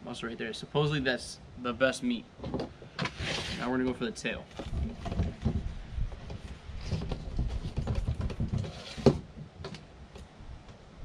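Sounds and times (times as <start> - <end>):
low thumps and handling noise: 2.4 - 10.9
faint knife scrapes: 3.0 - 3.7.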